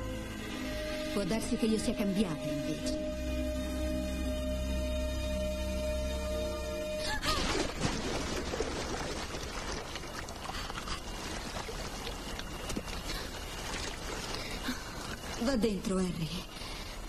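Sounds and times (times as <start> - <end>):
water splashing onto pool deck: 7.3 - 15.5
water trickling across paving: 7.4 - 17.0.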